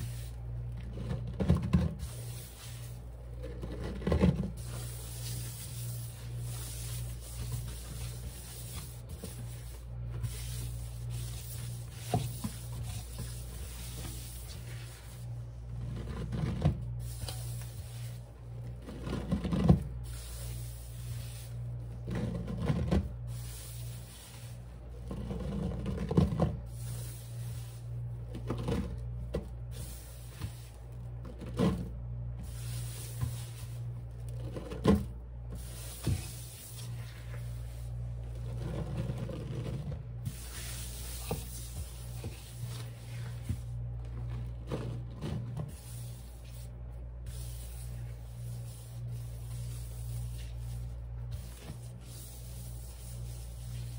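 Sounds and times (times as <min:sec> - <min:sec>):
hands rubbing crunching powder: 0:00.0 - 0:01.1, 0:02.0 - 0:16.1, 0:17.0 - 0:18.4, 0:20.0 - 0:22.3, 0:23.2 - 0:25.8, 0:26.6 - 0:28.4, 0:32.4 - 0:34.6, 0:35.6 - 0:39.5, 0:40.2 - 0:44.4, 0:45.6 - 0:53.9
steady low hum: 0:00.0 - 0:53.9.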